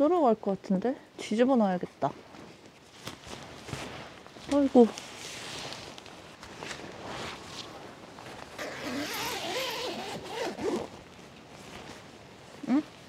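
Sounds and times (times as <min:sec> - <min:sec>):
tent fabric rustling: 0:02.3 - 0:13.0
tent zipper being pulled: 0:08.4 - 0:11.0.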